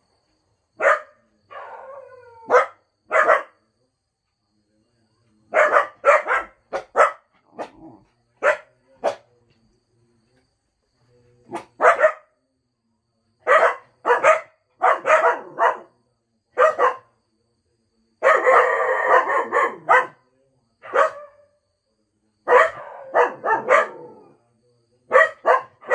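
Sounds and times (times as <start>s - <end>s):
dogs barking: 0.8s - 3.6s, 5.5s - 9.3s, 11.5s - 12.3s, 13.4s - 15.9s, 16.6s - 17.1s, 18.2s - 20.2s, 20.8s - 21.4s, 22.5s - 24.3s, 25.1s - 25.9s.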